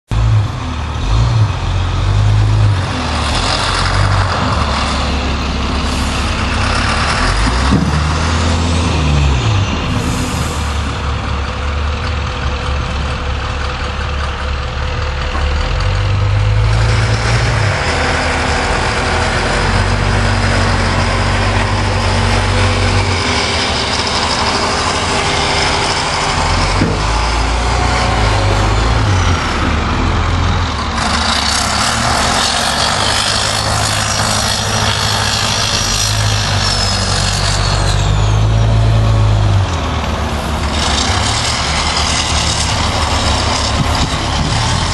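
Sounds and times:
truck engine running: 0:00.1 - 0:44.9
wind noise: 0:35.1 - 0:44.9.

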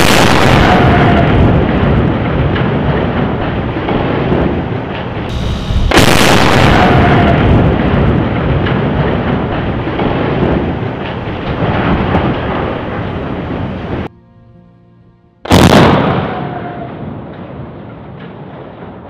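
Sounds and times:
loud blast: 0:00.0 - 0:14.1, 0:15.5 - 0:19.0
sharp cracks: 0:00.0 - 0:14.1, 0:15.5 - 0:19.0
long rumbling roar: 0:05.3 - 0:09.4.

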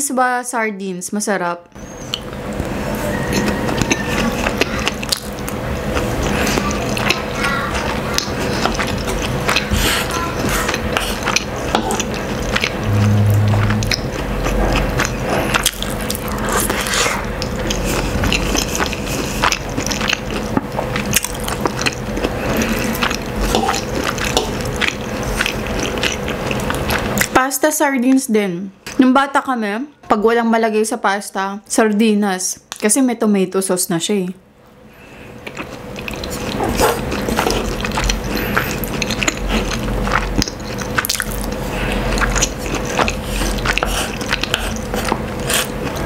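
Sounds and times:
chewing and mouth smacks: 0:03.3 - 0:12.9, 0:13.8 - 0:27.3, 0:35.4 - 0:46.0.

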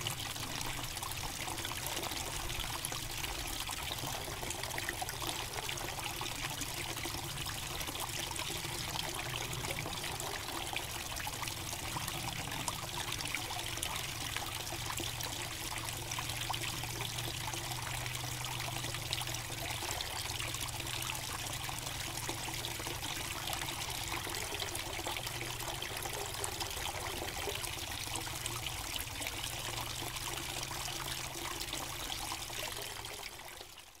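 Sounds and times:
water trickling into pond: 0:00.0 - 0:34.0.

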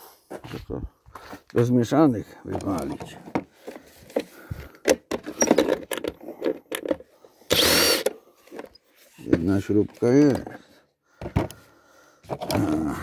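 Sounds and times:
plastic housing being handled: 0:02.4 - 0:07.1, 0:12.2 - 0:13.0
harsh rasping burst: 0:07.5 - 0:08.1.

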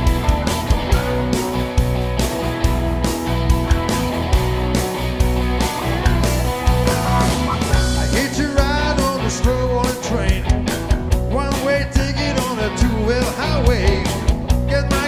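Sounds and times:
blues-rock band playing: 0:00.0 - 0:15.0
man singing: 0:07.1 - 0:15.0.

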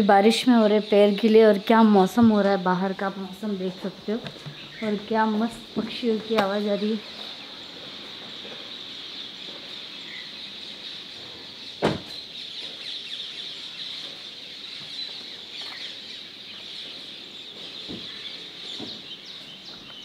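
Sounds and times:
birds chirping and calling: 0:00.0 - 0:20.0
loud thump: 0:11.8 - 0:12.1.

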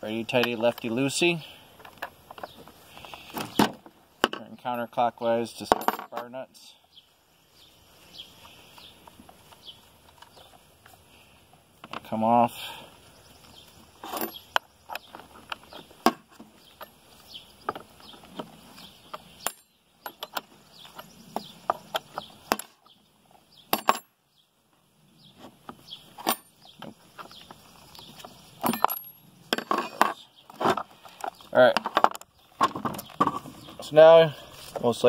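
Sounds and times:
metal tools clicking and clinking: 0:05.6 - 0:06.3, 0:23.7 - 0:24.1, 0:26.2 - 0:26.7, 0:28.6 - 0:30.2.

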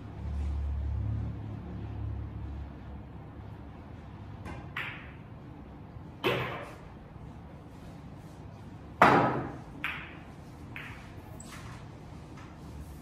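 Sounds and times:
pool balls clacking: 0:09.0 - 0:11.5.

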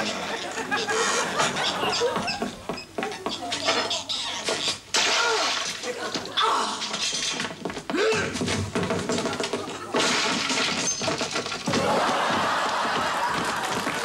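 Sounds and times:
voices: 0:03.0 - 0:06.9
wood breaking: 0:04.9 - 0:07.0, 0:08.4 - 0:14.0
thuds and knocks: 0:07.5 - 0:14.0.

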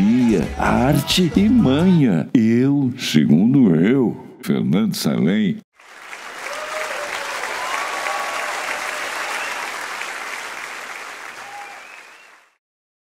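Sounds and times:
crowd applauding and cheering: 0:05.8 - 0:12.6
whistles or shouts: 0:09.3 - 0:09.7, 0:11.4 - 0:12.6.

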